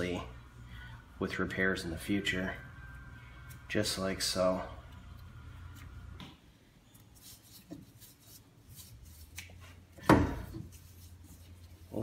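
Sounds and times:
gloved hands rubbing metal: 7.0 - 10.0, 10.6 - 12.0.

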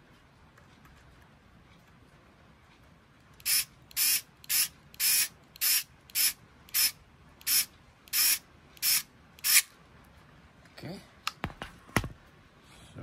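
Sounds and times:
cordless screwdriver bursts: 3.4 - 9.7.

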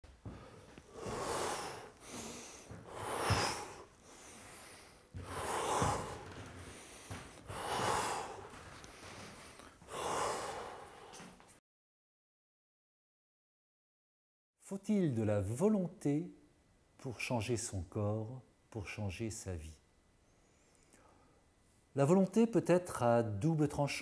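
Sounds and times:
person breathing deeply: 0.3 - 11.4.

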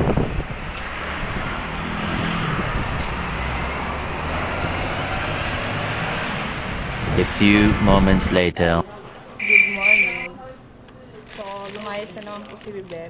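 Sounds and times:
steady road noise: 0.0 - 10.3
vehicle engine humming: 6.8 - 8.8, 9.4 - 10.3.

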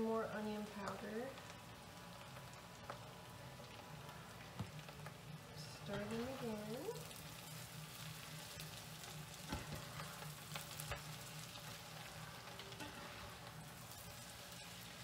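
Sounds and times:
potatoes sizzling in a frying pan: 0.0 - 15.0
spatula scraping a pan: 12.0 - 13.6.

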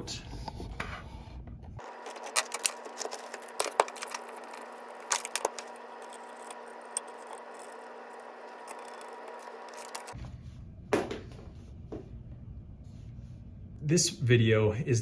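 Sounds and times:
faint steady hum: 0.1 - 15.0
plastic parts clicking and rattling: 1.8 - 10.2.

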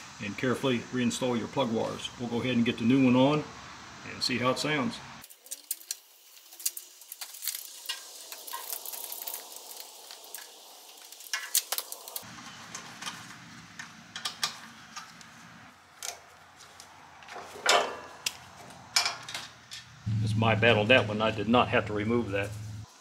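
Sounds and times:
low steady hum: 20.0 - 22.9.

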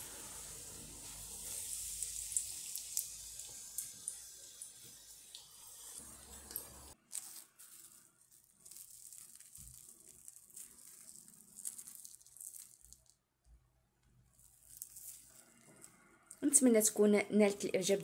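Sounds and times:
oil sizzling in a frying pan: 0.0 - 7.4
hands tearing crispy fried food: 7.0 - 13.2, 14.4 - 16.0.

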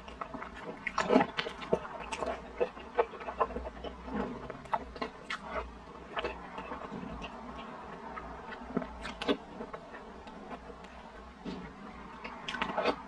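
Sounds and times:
faint steady hum: 0.0 - 13.0
wet mouth chewing smacks: 0.5 - 11.0, 12.1 - 13.0.

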